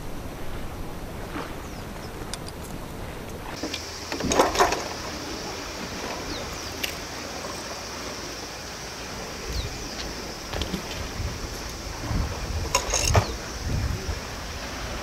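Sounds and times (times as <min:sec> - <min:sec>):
sea water lapping: 0:00.0 - 0:15.0
steady high hiss: 0:03.4 - 0:15.0.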